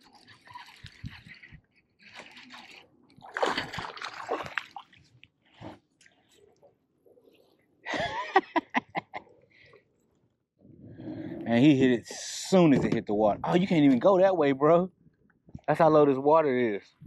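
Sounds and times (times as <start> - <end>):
fish thrashing and splashing: 0.0 - 6.6.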